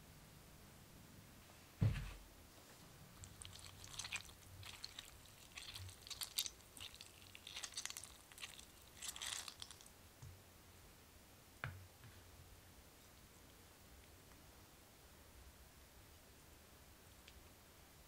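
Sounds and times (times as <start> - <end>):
hand squelching wet cherries: 3.1 - 10.0.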